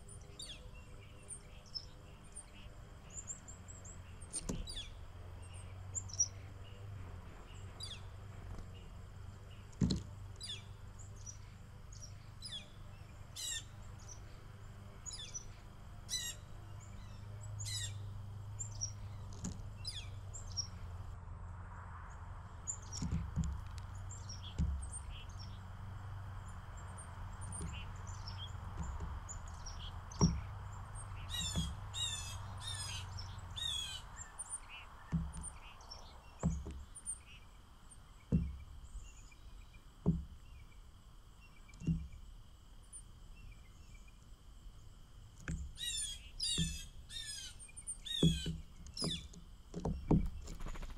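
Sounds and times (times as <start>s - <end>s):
harsh bird calls: 0.0s - 21.1s, 22.6s - 42.2s, 45.5s - 50.9s
birds calling and chirping: 0.0s - 21.2s, 22.6s - 50.9s
soft low thumps: 22.9s - 32.7s, 35.0s - 35.7s, 36.3s - 37.0s, 38.2s - 38.9s, 40.0s - 40.6s, 41.8s - 42.2s, 48.1s - 50.6s.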